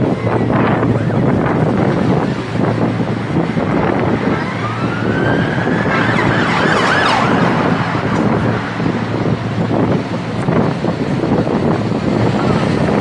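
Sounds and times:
emergency siren wailing: 0:00.0 - 0:10.0
road noise: 0:00.0 - 0:13.0
wind noise: 0:00.0 - 0:13.0.

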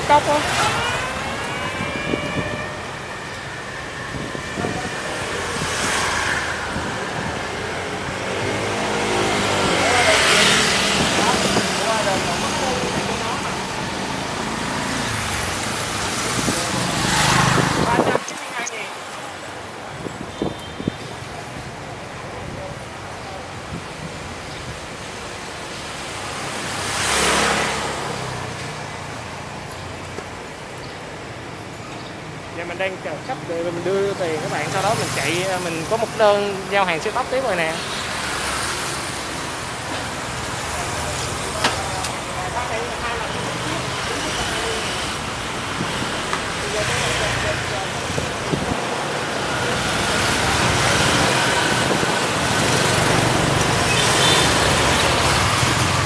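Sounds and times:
motorbike and scooter engines passing: 0:00.0 - 0:56.0
street background noise: 0:00.0 - 0:56.0
vehicle passing by: 0:04.0 - 0:18.2, 0:26.3 - 0:28.8.

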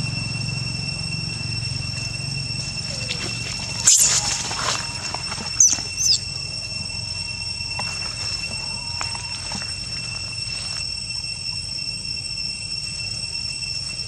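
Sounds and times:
high-pitched insect drone: 0:00.0 - 0:14.0
monkey squealing: 0:02.7 - 0:06.6.

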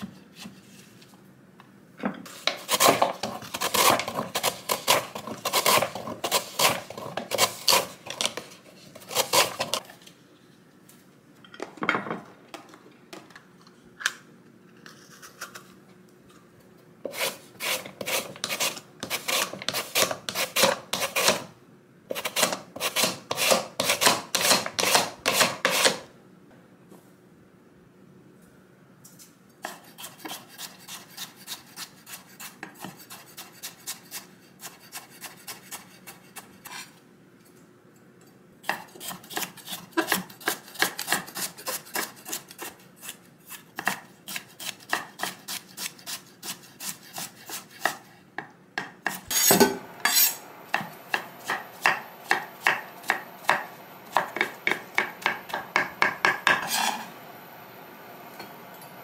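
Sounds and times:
knife chopping on wooden board: 0:50.7 - 0:56.8.

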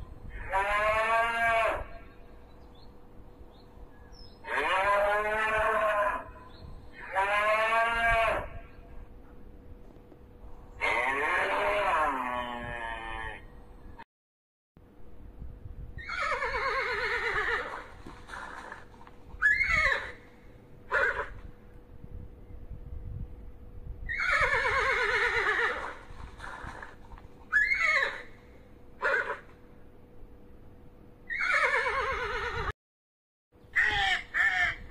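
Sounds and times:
cattle mooing: 0:10.8 - 0:13.4
horse whinnying: 0:16.0 - 0:18.8, 0:19.4 - 0:20.2, 0:20.9 - 0:21.4, 0:24.1 - 0:28.3, 0:29.0 - 0:29.5, 0:31.3 - 0:32.7.

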